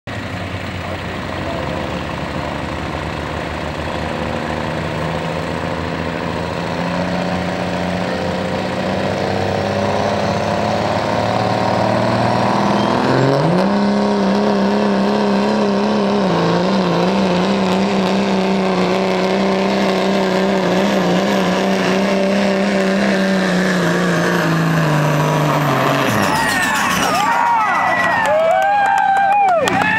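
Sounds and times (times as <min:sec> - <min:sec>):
diesel truck engine revving under load: 0:00.1 - 0:28.8.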